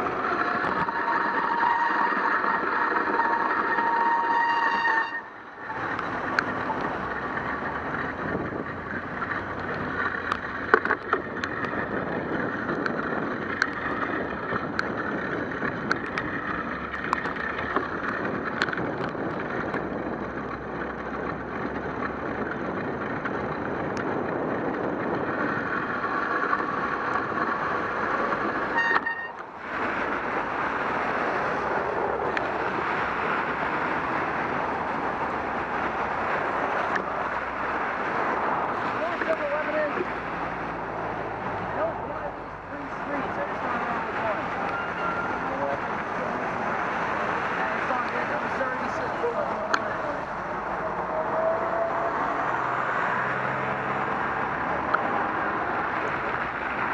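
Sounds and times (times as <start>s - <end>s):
passing car traffic: 0.0s - 56.9s
wind on microphone: 0.0s - 56.9s
small clicks and knocks: 9.6s - 11.8s, 15.8s - 19.8s.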